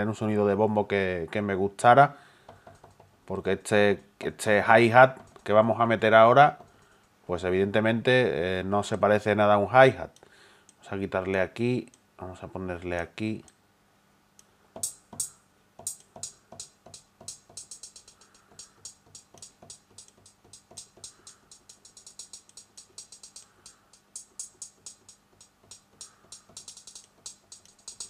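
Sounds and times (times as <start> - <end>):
synthesized hi-hat ticking: 2.5 - 3.2, 14.8 - 28.0.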